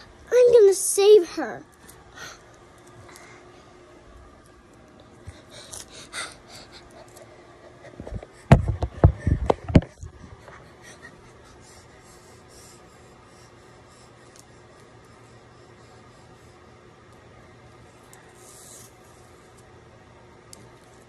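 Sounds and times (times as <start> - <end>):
bumps and knocks on microphone: 8.1 - 10.0.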